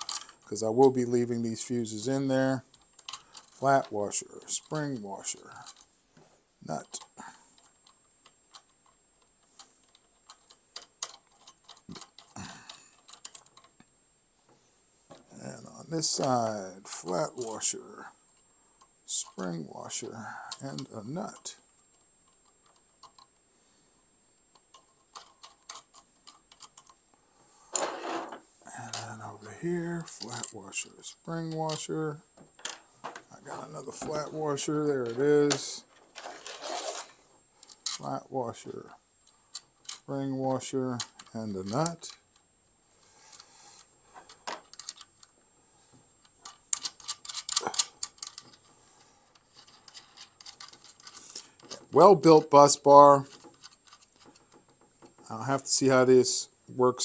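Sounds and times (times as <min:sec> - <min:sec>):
small metal clicks of nut and washers: 0:00.0 - 0:00.5, 0:02.4 - 0:03.7, 0:06.8 - 0:13.9, 0:24.5 - 0:27.0, 0:39.2 - 0:40.1, 0:44.3 - 0:45.3, 0:46.2 - 0:48.7, 0:49.3 - 0:51.8, 0:53.3 - 0:55.3.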